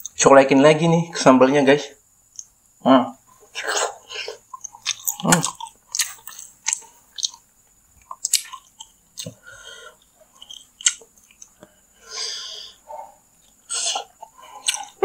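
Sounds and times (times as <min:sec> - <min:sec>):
chewing and wet mouth smacks: 0:04.5 - 0:09.4, 0:10.0 - 0:11.7, 0:13.4 - 0:15.0
sharp sticky clicks: 0:08.0 - 0:09.4.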